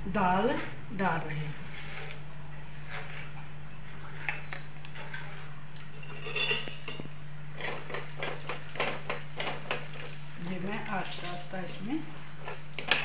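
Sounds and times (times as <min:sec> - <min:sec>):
utensils clinking against pan: 0:05.9 - 0:07.1.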